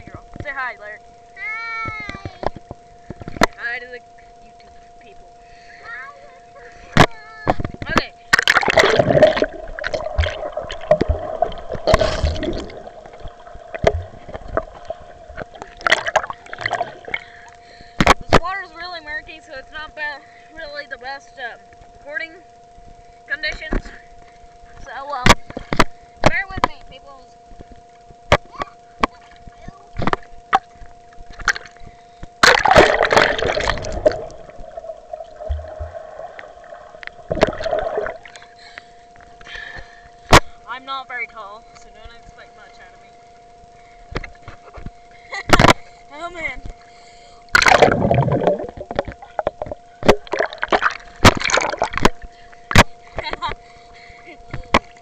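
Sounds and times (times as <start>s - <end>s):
faint steady hum: 0.0s - 55.0s
faint steady tone: 0.0s - 55.0s
water sloshing and gurgling: 6.7s - 20.8s, 23.8s - 40.7s, 41.6s - 55.0s
water splashing: 8.3s - 18.5s, 29.0s - 38.6s, 47.5s - 53.6s.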